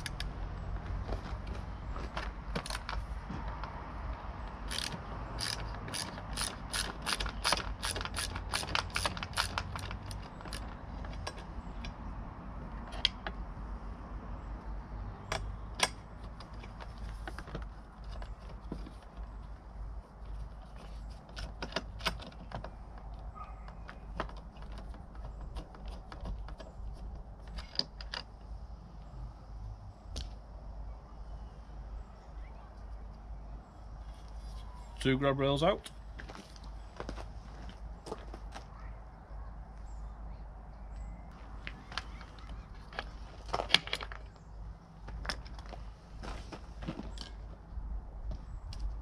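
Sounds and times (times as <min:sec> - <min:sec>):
tool handling clicks and knocks: 0:00.0 - 0:12.1, 0:12.8 - 0:13.4, 0:15.2 - 0:19.6, 0:20.3 - 0:28.6, 0:41.6 - 0:47.5
ratchet driver clicking: 0:04.7 - 0:10.7.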